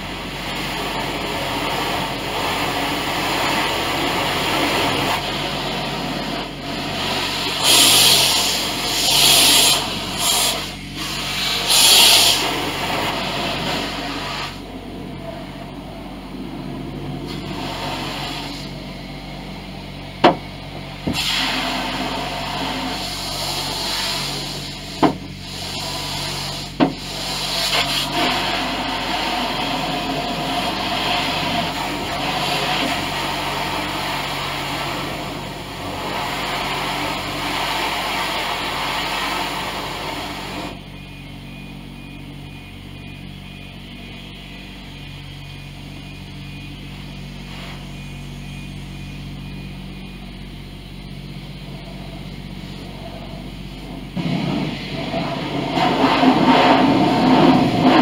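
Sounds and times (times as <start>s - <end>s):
water spraying over a car: 0.0s - 14.9s, 17.2s - 19.2s, 21.1s - 40.8s, 52.6s - 58.0s
low hum: 0.0s - 58.0s.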